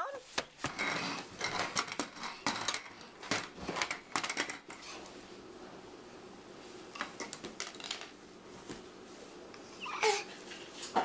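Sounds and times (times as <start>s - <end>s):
plastic toy clattering on tile floor: 0.6s - 4.8s, 7.0s - 8.2s.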